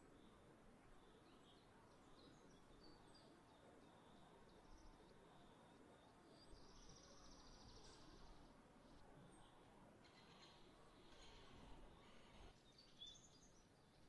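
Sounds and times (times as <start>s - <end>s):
low outdoor hiss: 0.0s - 14.0s.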